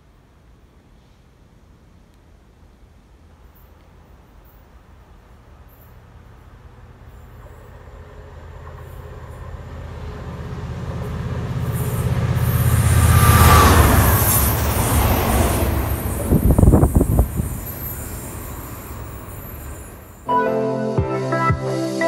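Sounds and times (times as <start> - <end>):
diesel locomotives passing: 3.0 - 20.8
rush of wheels and air: 5.6 - 20.3.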